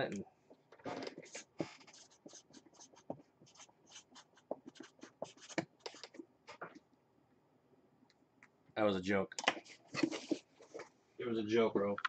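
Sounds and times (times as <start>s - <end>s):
marker pen scratching on cardboard: 1.2s - 6.2s.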